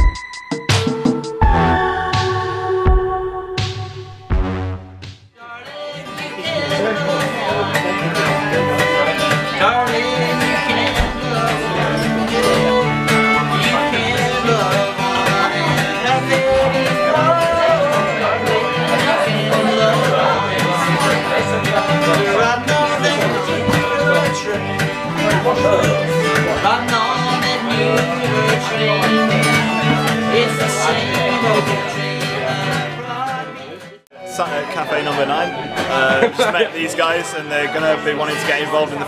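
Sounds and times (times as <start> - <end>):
acoustic guitar strumming: 0.0 - 39.0
fiddle playing melody: 6.1 - 39.0.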